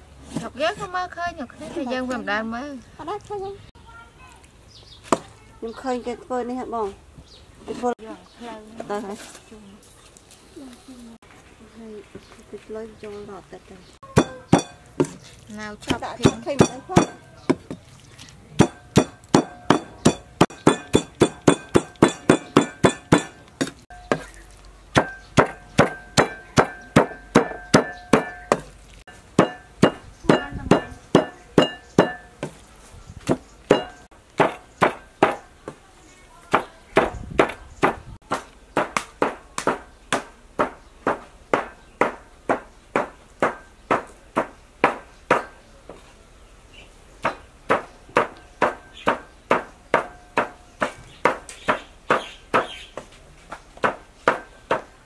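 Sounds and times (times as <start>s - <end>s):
cleaver chopping on wooden board: 18.6s - 24.4s, 25.0s - 28.8s, 29.4s - 32.6s, 33.2s - 35.5s, 36.5s - 45.6s, 47.2s - 52.8s, 53.8s - 54.9s.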